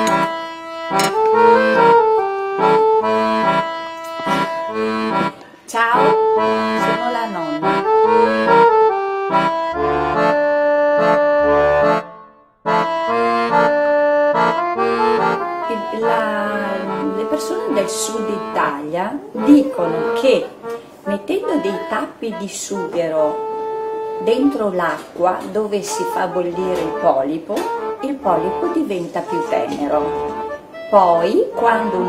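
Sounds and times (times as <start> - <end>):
accordion music: 0.0 - 32.0.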